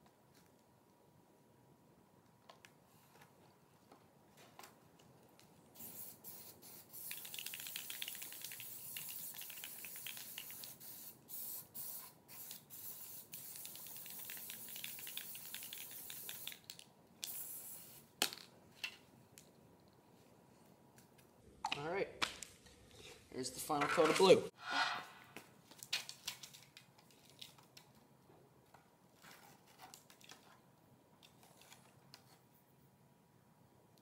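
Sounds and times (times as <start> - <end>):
aerosol can spraying: 5.8 - 16.6, 17.2 - 18.1.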